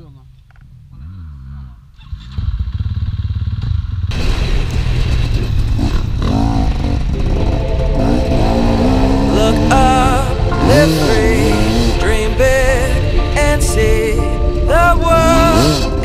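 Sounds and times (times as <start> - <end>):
dirt bike engine revving: 0.7 - 12.1, 15.2 - 16.0.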